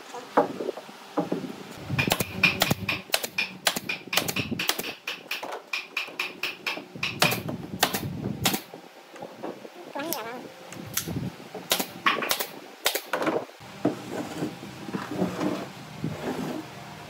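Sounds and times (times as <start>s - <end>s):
pneumatic nail gun firing: 1.9s - 8.7s, 11.7s - 13.2s.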